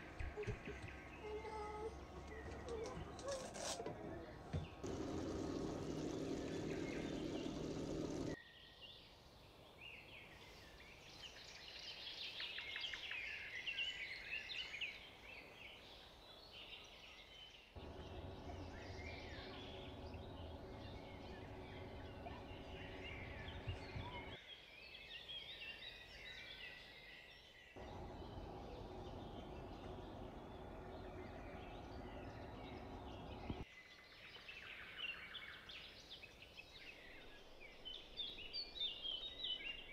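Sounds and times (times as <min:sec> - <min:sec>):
birds chirping and calling: 0:00.1 - 0:08.4, 0:17.8 - 0:24.4, 0:27.8 - 0:33.6.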